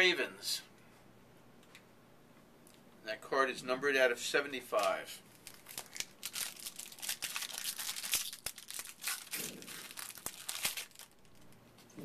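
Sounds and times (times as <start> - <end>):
wrapper crinkling: 4.8 - 11.7.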